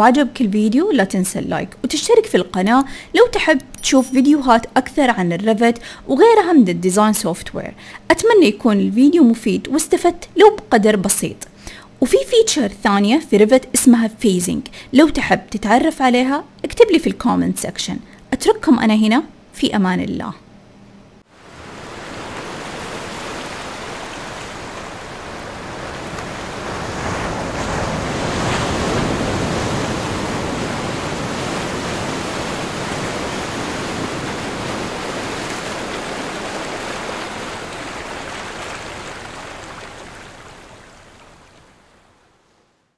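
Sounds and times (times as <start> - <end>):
ocean surf breaking: 21.3 - 42.6.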